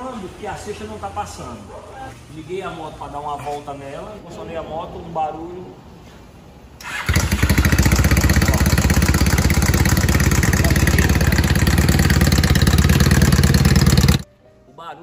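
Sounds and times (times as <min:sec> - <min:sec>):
motorcycle engine knocking: 0:07.1 - 0:14.2.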